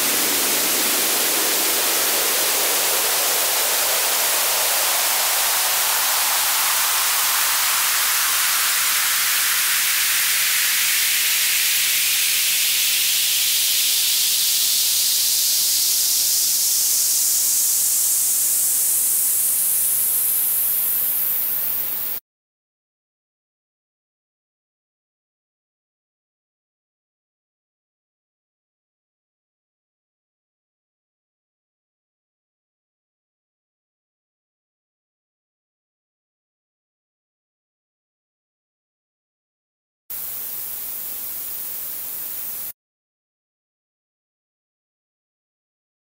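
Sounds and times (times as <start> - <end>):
white noise filter sweep: 0.0 - 22.2.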